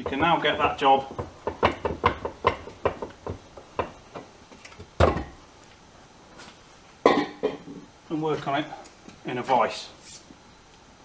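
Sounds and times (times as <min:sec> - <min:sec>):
metal knocks and clunks: 0:00.0 - 0:04.3, 0:04.9 - 0:05.4.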